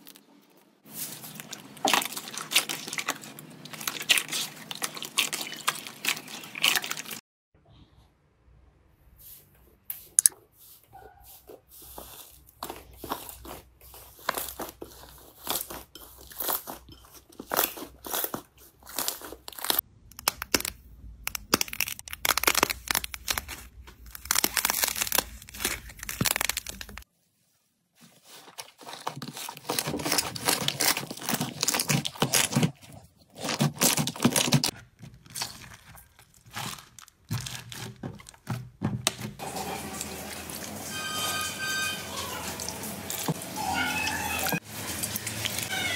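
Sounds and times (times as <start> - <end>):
plastic film crinkling: 0.0 - 7.2, 20.5 - 27.1, 28.0 - 38.8.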